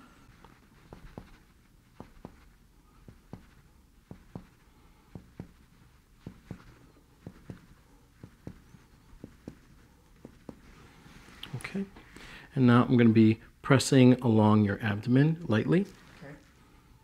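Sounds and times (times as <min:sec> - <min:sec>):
finger tapping on abdomen: 0:00.9 - 0:01.4, 0:02.0 - 0:10.7.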